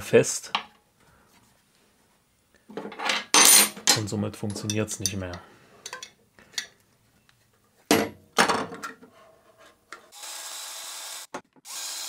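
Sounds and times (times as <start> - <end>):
cordless drill running: 10.1 - 12.0.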